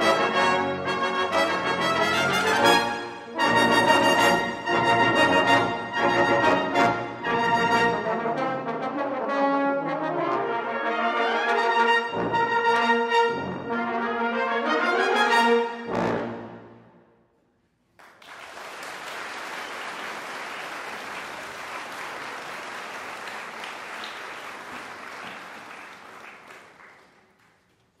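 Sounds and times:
brass ensemble playing a march: 0.0s - 16.8s
audience applauding: 17.9s - 28.0s.

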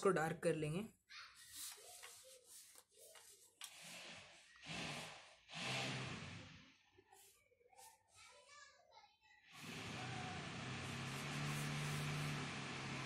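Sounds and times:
pencil scratching along ruler: 1.4s - 6.3s, 7.2s - 8.0s, 10.8s - 12.5s.

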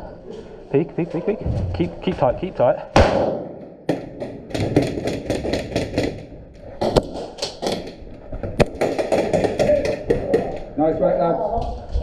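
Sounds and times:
loud single crack: 3.0s - 3.7s
rapid airsoft gunfire: 3.0s - 8.0s, 8.6s - 10.3s.

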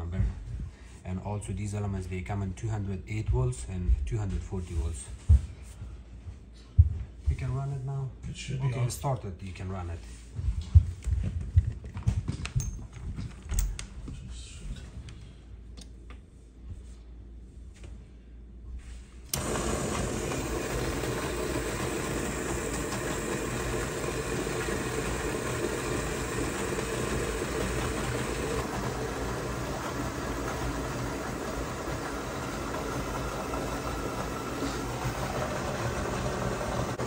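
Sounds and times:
dishwasher machine and water running: 19.3s - 37.0s.

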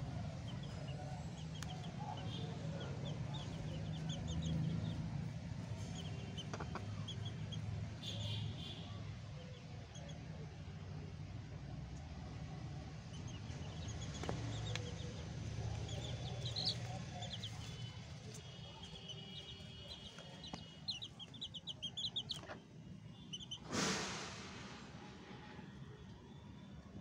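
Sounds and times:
chicks peeping: 0.0s - 8.6s, 13.1s - 22.6s, 23.3s - 23.7s
hen clucking softly: 5.9s - 7.5s.

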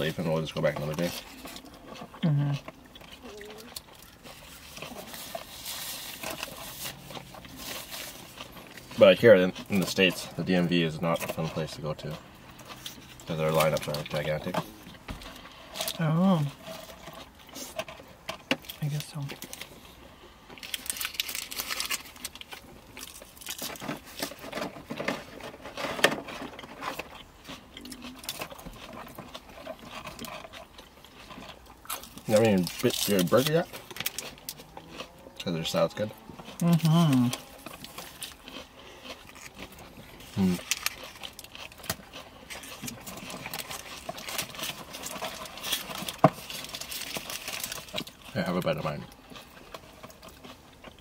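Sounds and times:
chewing and crunching food: 0.0s - 51.0s
paper wrapper crackling: 20.6s - 27.1s, 31.2s - 34.6s, 39.3s - 51.0s.

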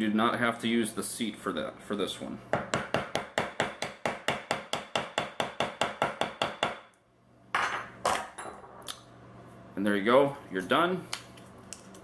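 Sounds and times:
hammer tapping metal: 2.5s - 6.9s.

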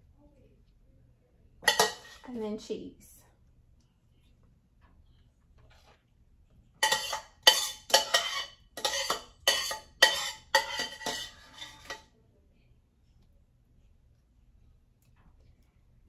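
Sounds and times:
metal utensil scraping a dish: 1.6s - 2.3s, 6.8s - 12.1s.

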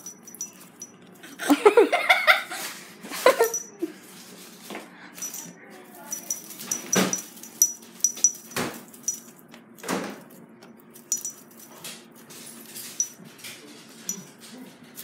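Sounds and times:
foil streamer toy jingling: 0.0s - 1.8s, 3.2s - 3.8s, 5.2s - 13.3s.

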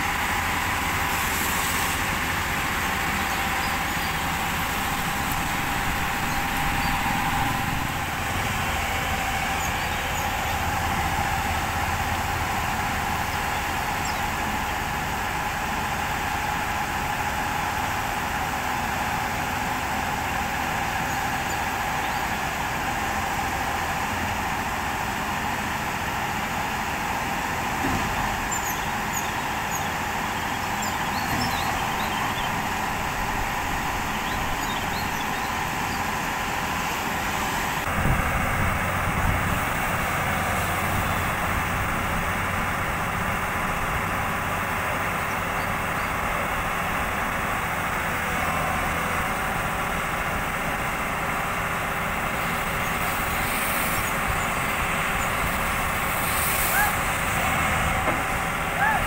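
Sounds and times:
excavator diesel engine under load: 0.0s - 59.0s.

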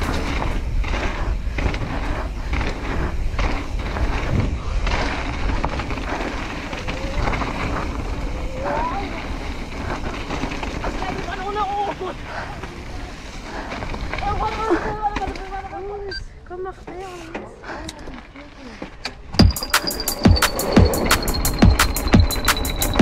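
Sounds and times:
wind on microphone: 0.0s - 11.2s
bike tyres on loose dirt: 0.0s - 23.0s
bike knocks and rattles: 13.7s - 16.0s, 18.7s - 23.0s
short rising tones: 19.4s - 23.0s.

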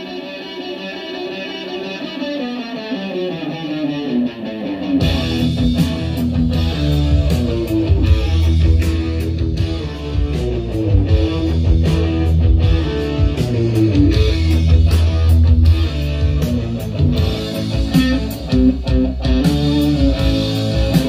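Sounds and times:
plucked guitar: 0.0s - 21.0s
band with heavy bass and drums: 4.9s - 21.0s.

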